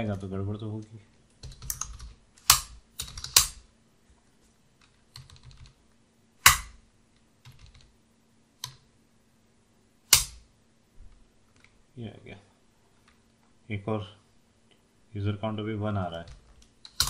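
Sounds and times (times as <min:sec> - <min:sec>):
typing on keyboard: 0:01.4 - 0:03.6, 0:04.8 - 0:05.8, 0:07.4 - 0:07.9.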